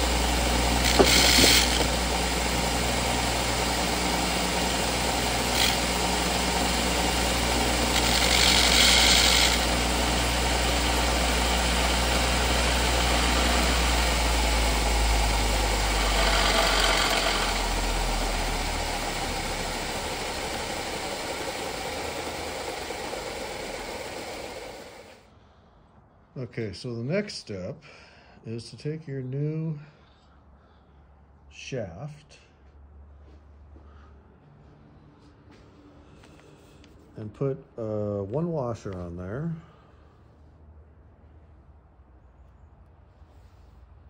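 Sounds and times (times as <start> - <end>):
metal grinding against wheel: 0.0 - 2.2, 7.8 - 9.9, 15.9 - 19.5
electric grinder humming: 0.0 - 25.2
grinder wheel winding down: 0.0 - 25.2.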